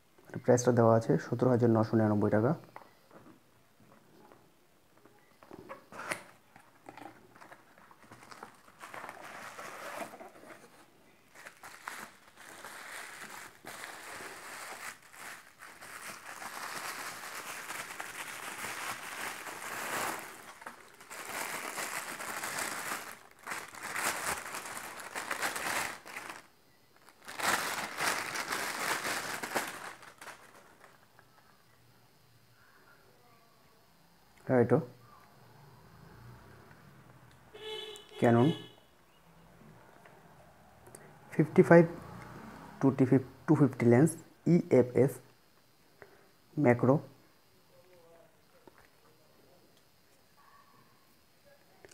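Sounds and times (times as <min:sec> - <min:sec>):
bubble wrap crinkling: 0:05.6 - 0:31.4.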